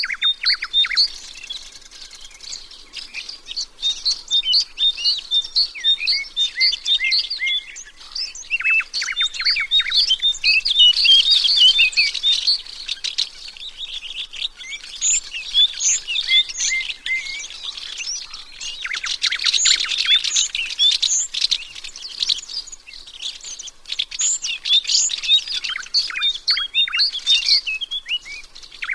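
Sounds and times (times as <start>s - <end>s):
songbirds chirping and twittering: 0.0s - 28.9s.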